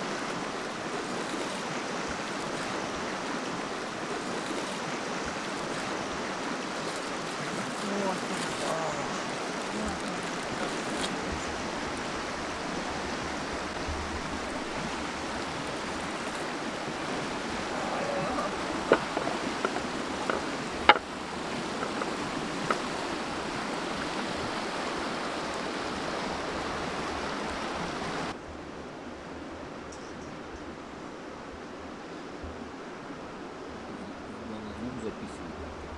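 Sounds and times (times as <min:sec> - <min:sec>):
rushing background noise: 0:00.0 - 0:28.4.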